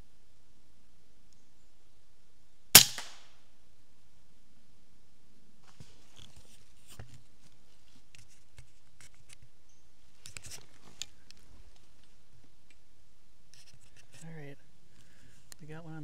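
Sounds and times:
crackles and rustles in dry leaves: 0:05.6 - 0:12.8.

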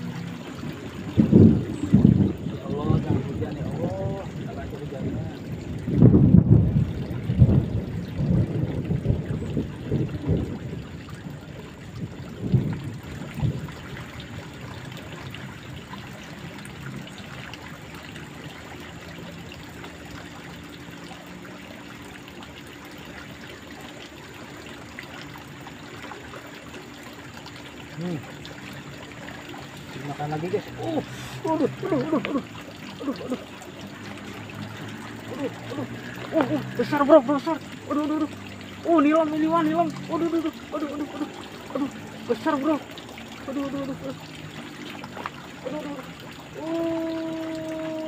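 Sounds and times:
stream trickling: 0:00.0 - 0:48.0
low rumbling bumps: 0:01.0 - 0:13.8.

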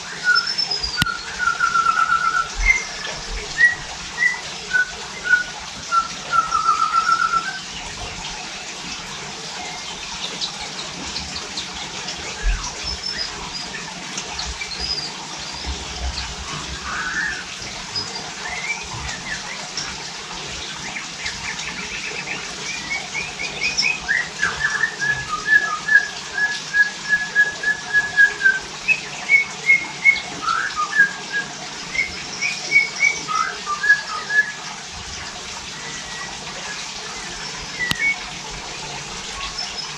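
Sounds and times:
bird singing whistled phrases: 0:00.0 - 0:07.8, 0:12.3 - 0:19.9, 0:20.9 - 0:34.7, 0:35.8 - 0:38.3.

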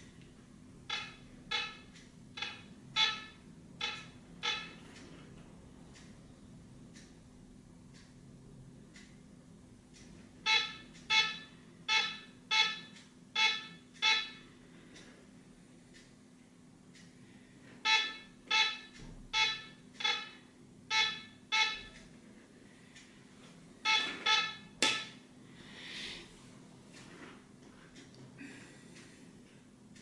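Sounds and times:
metal detector beeps: 0:00.9 - 0:01.8, 0:02.4 - 0:04.8, 0:10.5 - 0:14.4, 0:17.9 - 0:22.0, 0:23.9 - 0:25.2.

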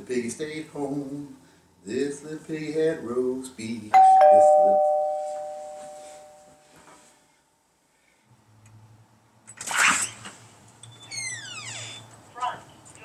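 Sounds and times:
doorbell chime: 0:04.0 - 0:06.6
door squeak: 0:10.9 - 0:12.1.

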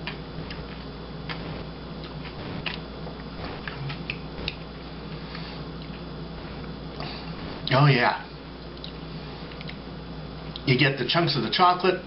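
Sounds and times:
person chewing: 0:00.0 - 0:07.7, 0:08.6 - 0:09.8
low background hum: 0:00.0 - 0:12.0.

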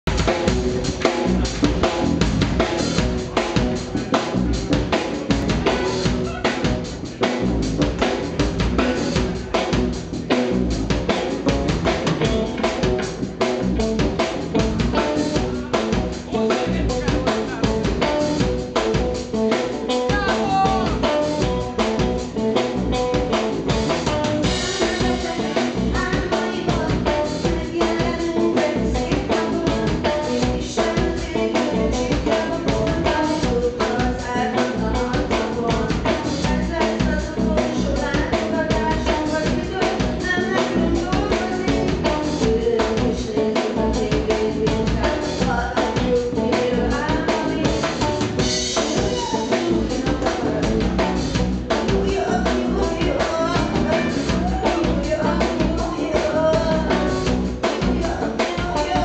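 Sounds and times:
drum kit beat: 0:00.0 - 0:59.0
electric bass: 0:00.0 - 0:59.0
electric guitar: 0:00.0 - 0:59.0.

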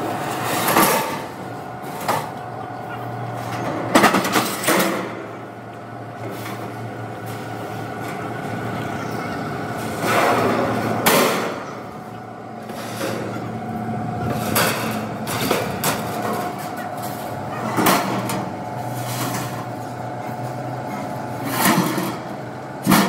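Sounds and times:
steady hum: 0:00.0 - 0:23.0
steel sheets clanking and scraping: 0:12.6 - 0:13.6, 0:14.2 - 0:19.9, 0:21.4 - 0:23.0.

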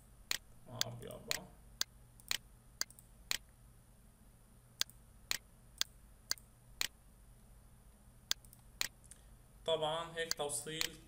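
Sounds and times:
computer mouse clicking: 0:00.3 - 0:03.5, 0:04.8 - 0:07.0, 0:08.3 - 0:09.0.

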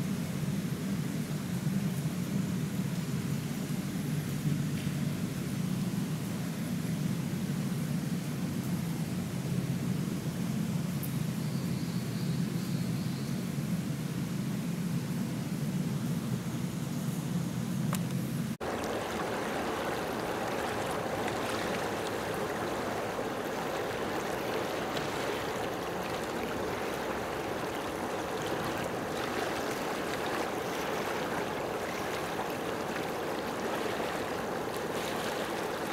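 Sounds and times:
waves washing on rocky shore: 0:18.6 - 0:35.9.

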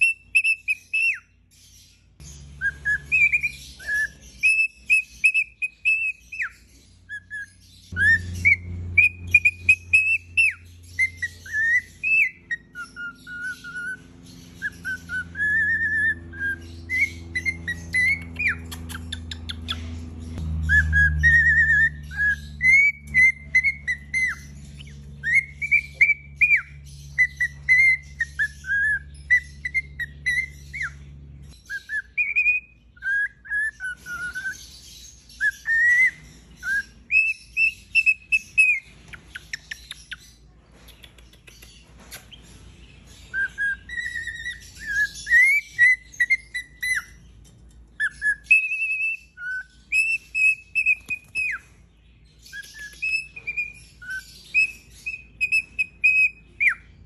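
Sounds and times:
cockatiel whistling: 0:00.0 - 0:01.3, 0:02.2 - 0:19.8, 0:20.7 - 0:40.2, 0:43.2 - 0:47.2, 0:47.9 - 0:51.8, 0:52.4 - 0:57.0.

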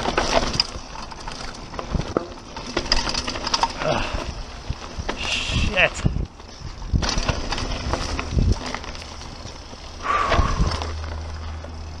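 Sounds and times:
mountain bike rattling: 0:00.0 - 0:12.0
wind rumbling on microphone: 0:03.9 - 0:12.0.

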